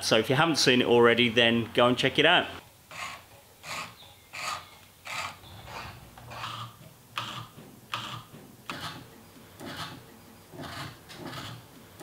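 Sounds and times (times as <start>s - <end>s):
wood thread cutter scraping: 2.9s - 9.0s, 9.6s - 12.0s.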